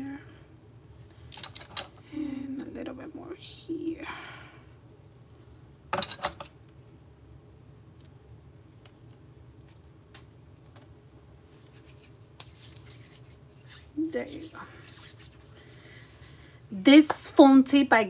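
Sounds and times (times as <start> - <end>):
low steady hum: 0.0 - 18.0
ring rubbing on cutting mat: 11.5 - 16.4.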